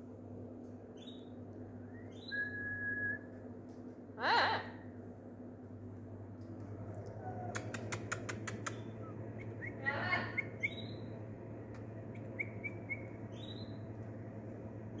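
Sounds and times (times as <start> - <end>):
low hum: 0.0 - 15.0
caged birds chirping: 0.8 - 2.9, 6.8 - 15.0
sharp clicks: 6.4 - 9.0.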